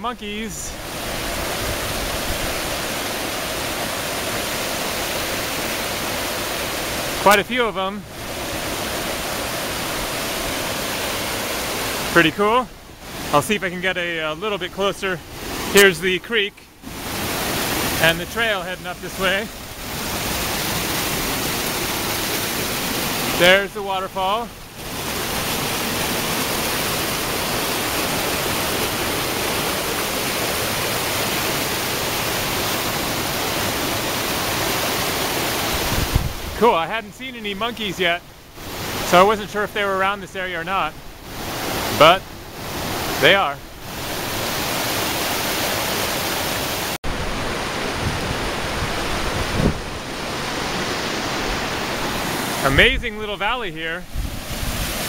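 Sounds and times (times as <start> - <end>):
flowing mountain water: 0.0 - 55.0.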